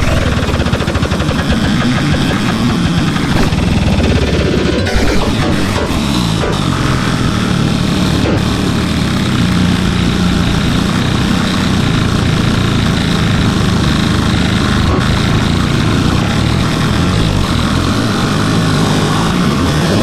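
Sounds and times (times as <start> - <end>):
dense synthesized piano drone: 2.7 - 10.7.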